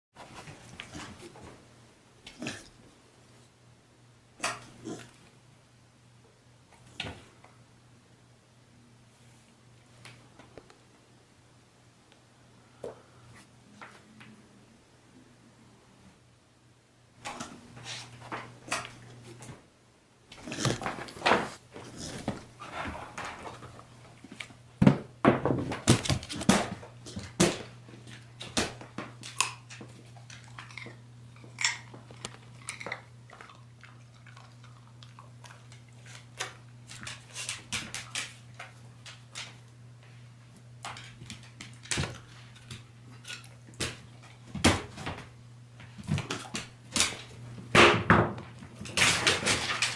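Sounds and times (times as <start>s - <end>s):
dog claws clicking on wooden floor: 35.5s - 39.7s, 40.8s - 44.8s.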